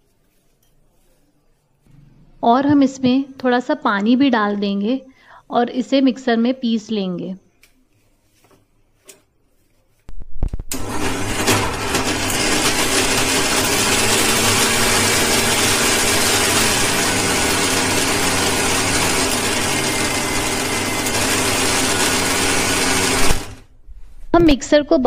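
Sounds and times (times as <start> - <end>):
food processor motor running: 10.7 - 23.6.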